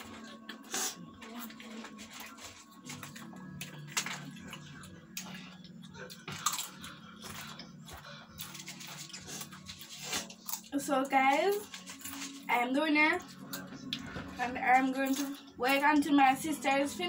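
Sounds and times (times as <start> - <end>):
chips being bitten and chewed: 0.0 - 12.5
snack packet crinkling: 0.1 - 5.4, 6.2 - 12.6.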